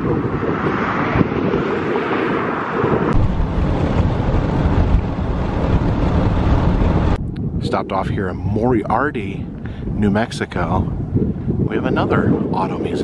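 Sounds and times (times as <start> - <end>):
car road and wind noise: 0.0 - 13.0.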